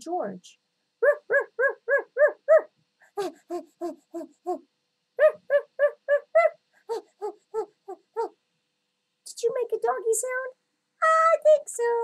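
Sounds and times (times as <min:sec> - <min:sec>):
person imitating dog barking: 0:01.0 - 0:04.6, 0:05.2 - 0:08.3.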